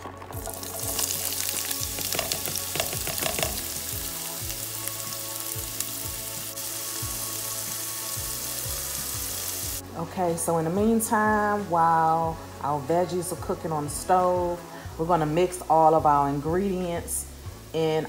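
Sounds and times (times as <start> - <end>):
vegetables sizzling in oil: 0.0 - 18.0
utensil clicking against pan: 2.0 - 3.6.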